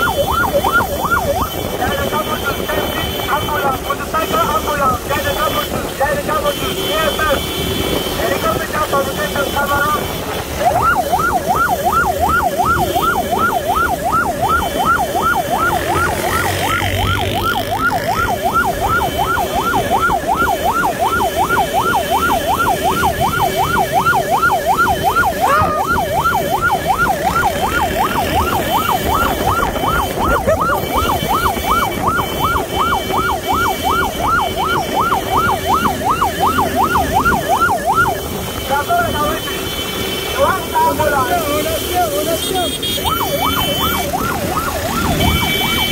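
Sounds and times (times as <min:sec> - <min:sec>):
electronic yelp siren: 0:00.0 - 0:45.9
motorcycle engines humming: 0:00.0 - 0:45.9
traffic: 0:00.0 - 0:45.9.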